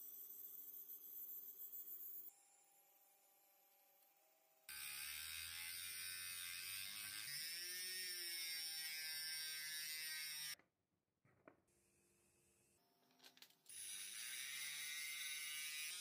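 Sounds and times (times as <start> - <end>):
rotary tool grinding steel: 4.7 - 10.6, 13.7 - 16.0.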